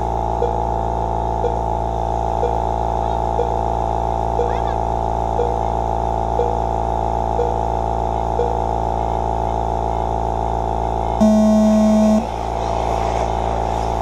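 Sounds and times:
steady hum: 0.0s - 14.0s
short beeps: 11.2s - 12.3s
loud long start tone: 11.2s - 12.6s.

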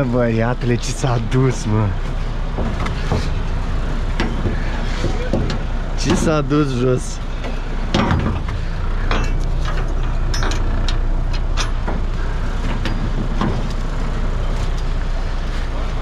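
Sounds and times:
truck engine running: 0.0s - 16.0s.

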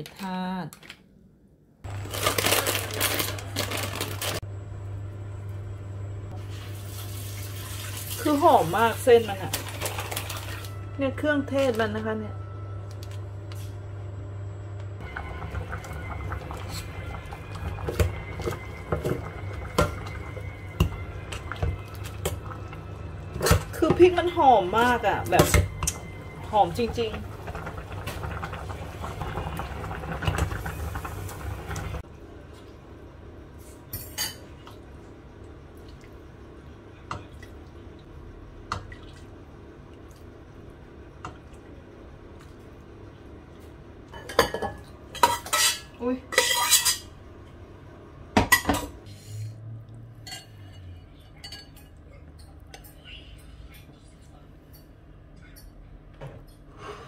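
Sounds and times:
plastic packet crinkling: 1.9s - 4.4s, 9.5s - 10.7s
broth pouring: 6.4s - 8.4s.

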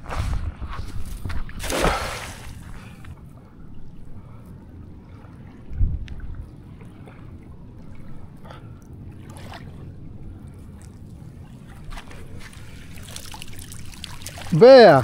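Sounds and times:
low rumble: 0.0s - 12.9s
water splashes and drips: 1.2s - 3.2s, 5.0s - 15.0s.

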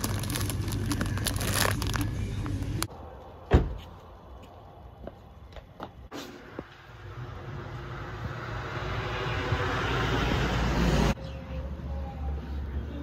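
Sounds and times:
plastic bag rustling: 0.0s - 2.9s.

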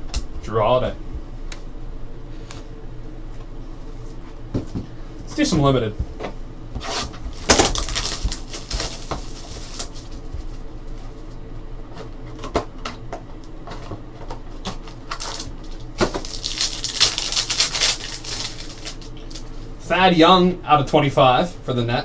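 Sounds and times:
cellophane wrapper crinkling: 7.3s - 10.6s, 14.7s - 19.7s.

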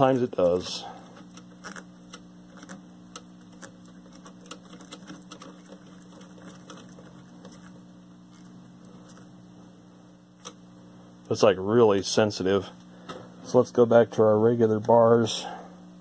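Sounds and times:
steady low hum: 0.0s - 16.0s
tuner knob clicking and scratching: 1.2s - 9.3s.

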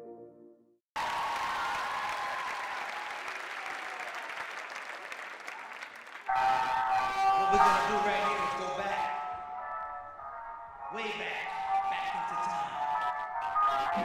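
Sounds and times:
soft synth music: 0.0s - 0.8s, 6.3s - 14.0s
audience applauding: 1.0s - 8.6s.

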